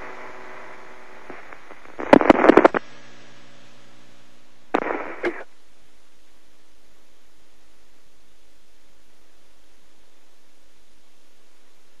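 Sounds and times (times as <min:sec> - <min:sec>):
crackly radio link: 0:00.0 - 0:05.6
sharp distorted pops: 0:00.6 - 0:03.0, 0:04.7 - 0:05.5.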